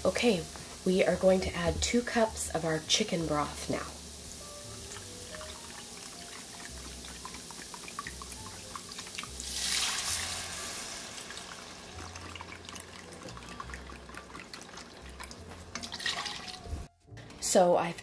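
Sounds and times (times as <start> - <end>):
liquid poured into pot: 4.8 - 16.9
liquid trickling into cup: 11.9 - 16.7.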